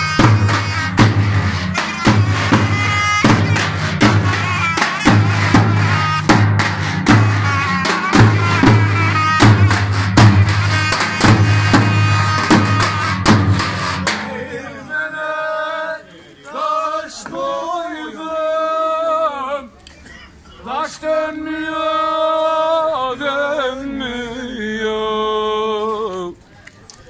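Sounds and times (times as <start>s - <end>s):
drum and zurna music: 0.0s - 14.8s
man singing unaccompanied: 14.2s - 19.7s, 20.6s - 26.4s.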